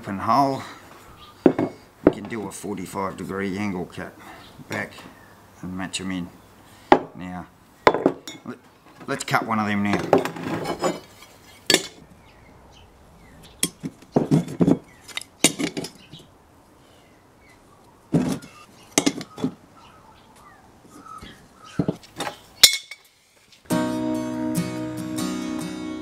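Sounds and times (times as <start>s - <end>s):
steel tubing clinking on workbench: 22.6s - 23.0s.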